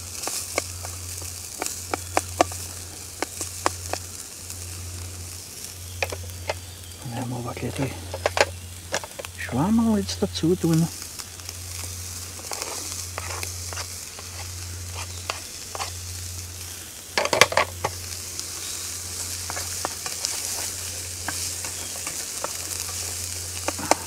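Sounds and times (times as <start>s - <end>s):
bacon sizzling in a pan: 0.0s - 24.0s
gas stove low hum: 0.0s - 24.0s
loud crackling in fat: 0.0s - 24.0s
wooden spatula scraping pan: 12.4s - 16.1s, 18.7s - 24.0s.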